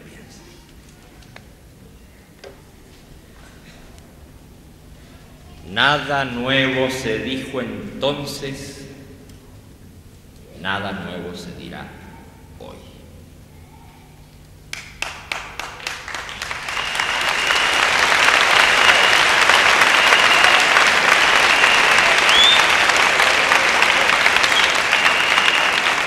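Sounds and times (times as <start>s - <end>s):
crowd applauding: 5.0s - 7.5s, 14.6s - 26.0s.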